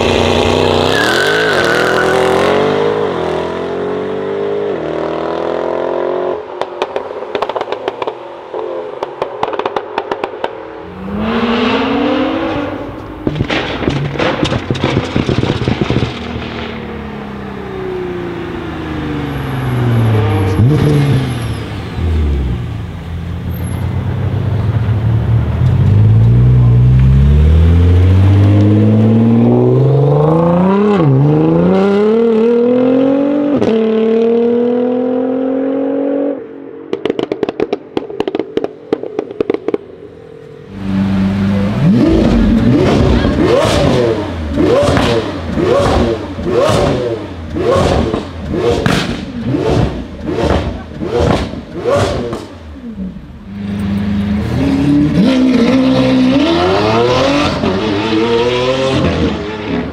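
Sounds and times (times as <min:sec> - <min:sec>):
exhaust crackling pops: 0:06.6 - 0:08.2, 0:09.0 - 0:10.6, 0:13.0 - 0:16.9, 0:36.9 - 0:40.0, 0:42.2 - 0:52.6
car engine accelerating: 0:10.8 - 0:37.7, 0:40.6 - 0:59.9
sports car engine revving: 0:40.7 - 0:59.9.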